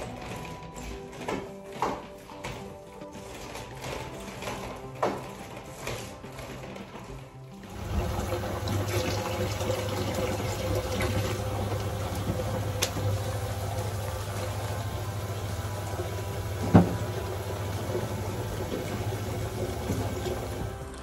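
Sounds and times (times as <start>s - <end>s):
tap running into a basin: 7.6s - 21.0s.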